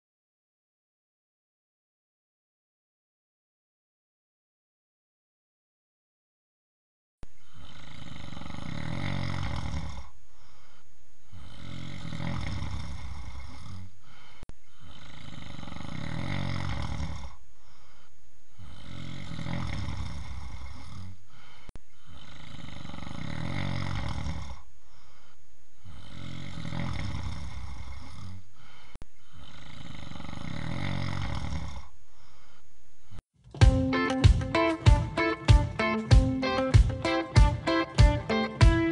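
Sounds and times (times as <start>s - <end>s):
person snoring: 7.4s - 33.2s.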